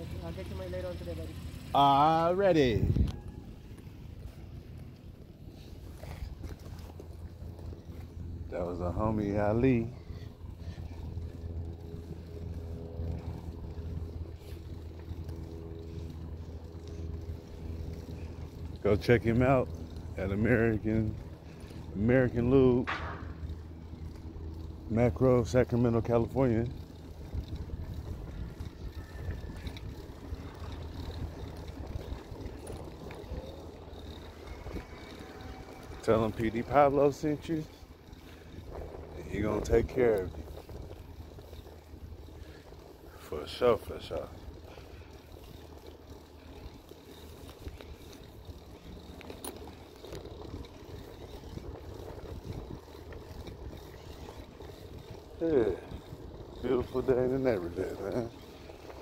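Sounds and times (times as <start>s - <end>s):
bike tyres rumbling on pavement: 0.0s - 59.0s
wind buffeting microphone: 2.6s - 4.2s, 5.8s - 59.0s
wind on microphone: 2.7s - 3.5s.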